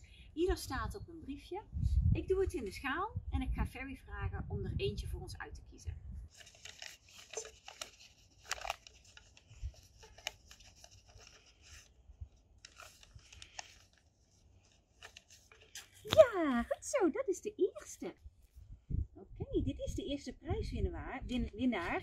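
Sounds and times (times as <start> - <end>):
paper rustling in plastic bowl: 6.3 - 16.5.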